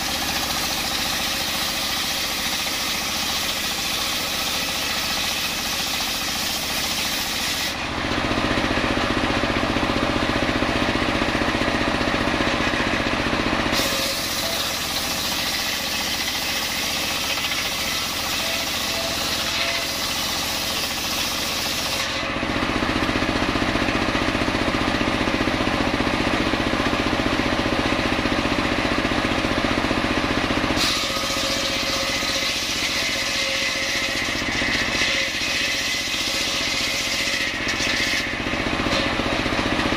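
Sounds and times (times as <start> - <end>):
saw blade cutting hiss: 0.0 - 7.8, 13.8 - 22.2
circular saw motor running: 0.0 - 39.9.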